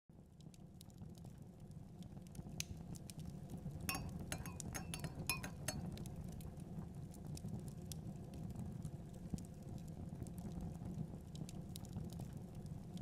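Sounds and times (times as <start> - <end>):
taps clinking on glass: 3.9 - 5.9.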